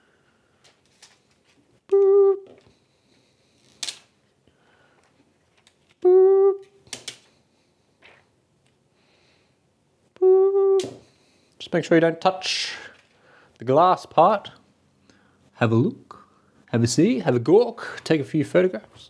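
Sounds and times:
person humming high note: 0:01.9 - 0:02.6, 0:06.0 - 0:06.7, 0:10.2 - 0:11.0
plastic film clicks: 0:03.7 - 0:04.1.

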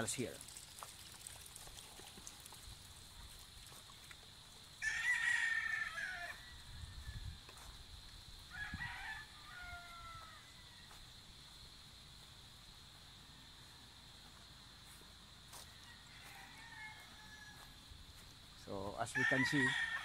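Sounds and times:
roosters crowing: 0:04.8 - 0:11.2, 0:15.5 - 0:18.0, 0:19.0 - 0:20.0.

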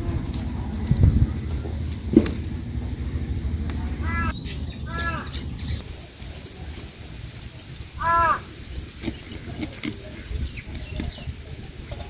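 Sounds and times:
bird call: 0:00.5 - 0:05.9, 0:08.0 - 0:11.4
knife scraping fish scales: 0:08.8 - 0:11.1.

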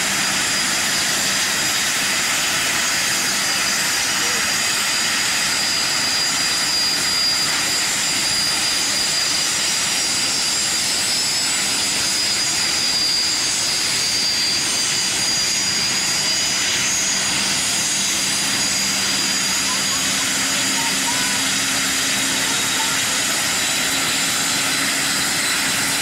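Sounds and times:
jet engine roar with whine: 0:00.0 - 0:26.0.

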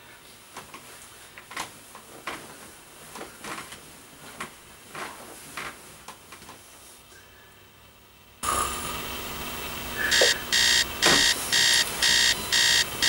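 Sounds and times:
bedsheets rustling: 0:00.4 - 0:07.0.

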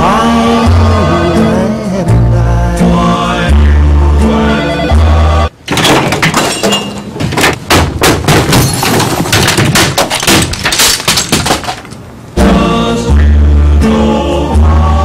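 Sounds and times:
crashes and thuds: 0:05.7 - 0:12.0
glass breaking: 0:05.7 - 0:12.0.

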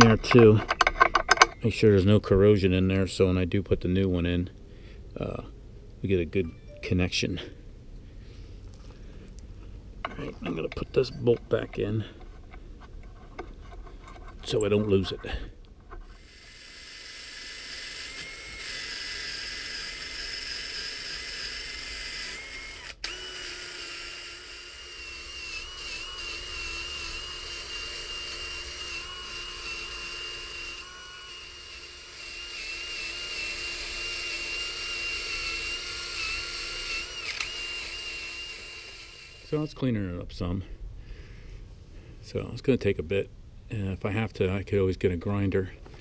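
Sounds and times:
wire wheel scratching metal: 0:00.0 - 0:01.6, 0:10.1 - 0:16.8
cordless drill motor whine: 0:16.0 - 0:39.7.

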